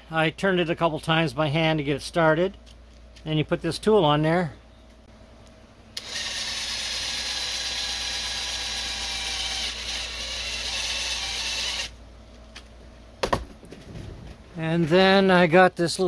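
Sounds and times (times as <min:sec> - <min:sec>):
cordless drill running: 0:06.0 - 0:12.0.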